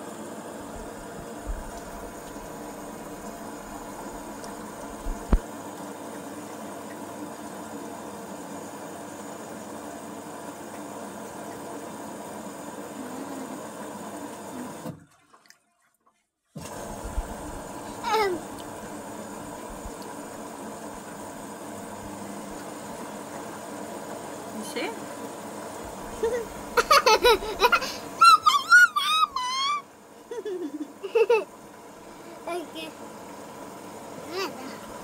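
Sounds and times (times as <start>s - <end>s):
washing machine hum: 0.0s - 35.0s
water and laundry sloshing: 0.6s - 7.4s, 13.1s - 28.2s.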